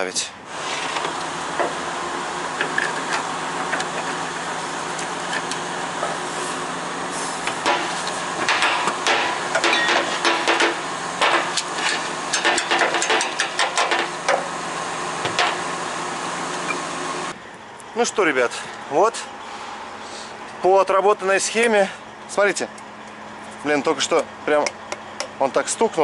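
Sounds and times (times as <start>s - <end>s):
hand tools tapping metal: 7.5s - 14.4s.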